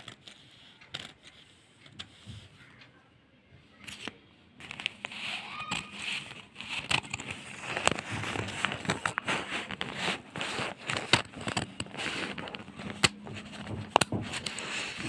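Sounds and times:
newspaper crackling: 3.9 - 15.0.

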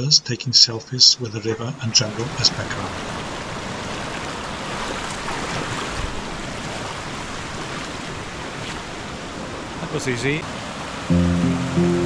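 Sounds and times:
river water rushing over cascades: 10.4 - 11.1.

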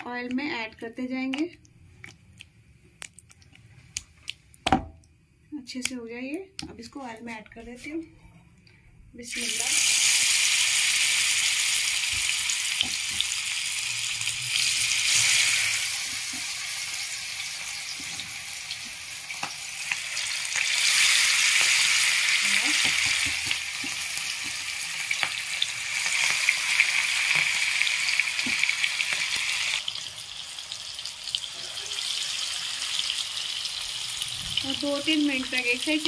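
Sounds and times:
fish sizzling in hot oil: 9.2 - 36.0.

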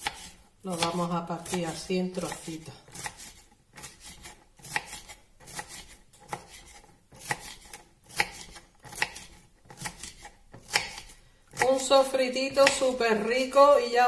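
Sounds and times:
knife chopping on wooden board: 0.0 - 11.9.

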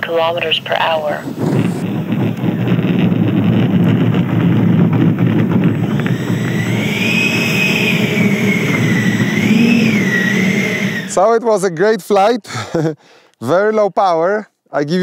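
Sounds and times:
electric fan whine: 0.0 - 12.0
rough rumble: 0.0 - 12.0.

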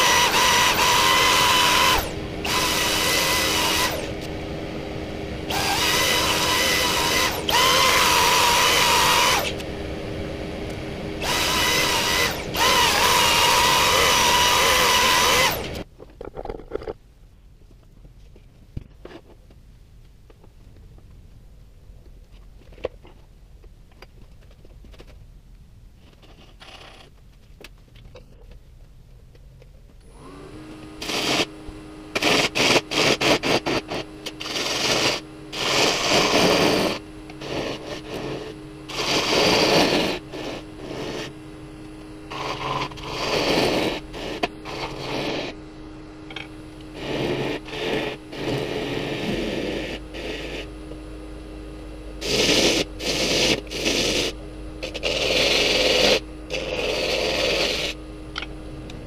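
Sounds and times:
turning tool cutting wood: 0.0 - 4.3, 5.4 - 9.7, 11.2 - 15.9, 31.0 - 41.3, 42.3 - 45.6, 52.2 - 58.0
wood lathe humming and whining: 0.0 - 15.8, 30.1 - 58.5.

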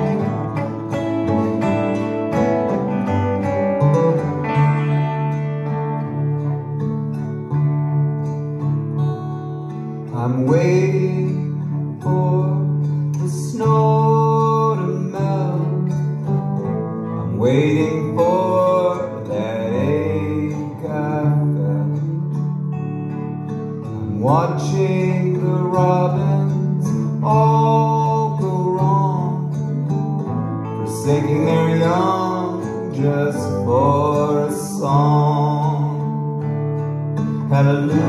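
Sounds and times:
bowed cello: 0.0 - 7.1
electric guitar: 0.0 - 38.0
strummed acoustic guitar: 0.0 - 38.0.

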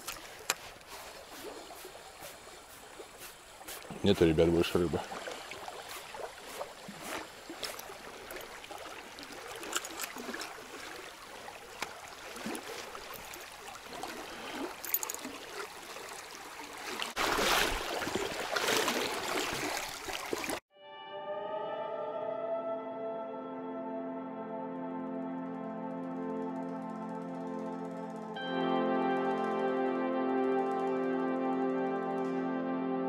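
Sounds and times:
river current rippling: 0.0 - 20.6.

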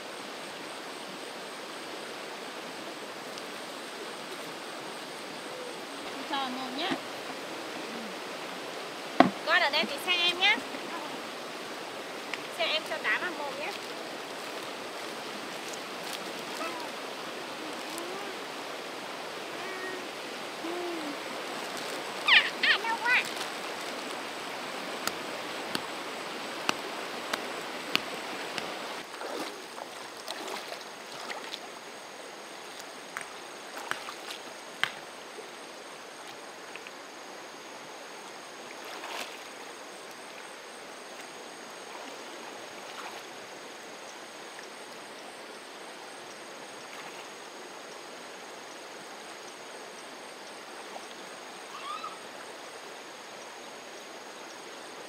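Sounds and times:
water running: 5.9 - 29.6
faint steady high tone: 19.5 - 21.2.

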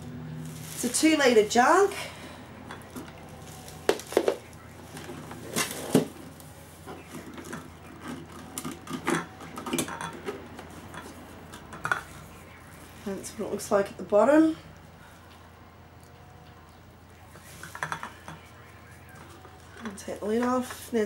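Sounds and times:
metal jug being handled: 2.6 - 12.4, 17.3 - 20.9.

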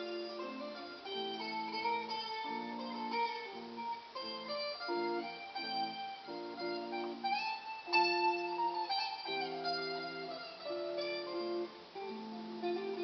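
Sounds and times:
electric guitar melody over chords: 0.0 - 13.0.

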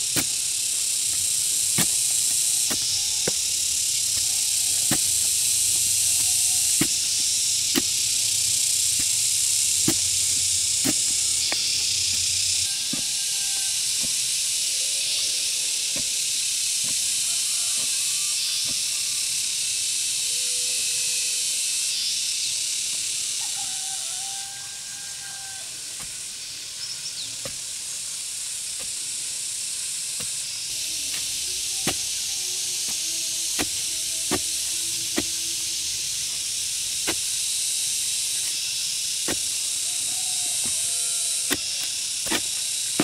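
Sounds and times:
wooden stick jabbed into soil: 0.0 - 13.2, 31.0 - 35.4, 36.4 - 37.4, 39.2 - 39.8, 40.4 - 43.0
insect chorus hissing: 0.0 - 43.0.

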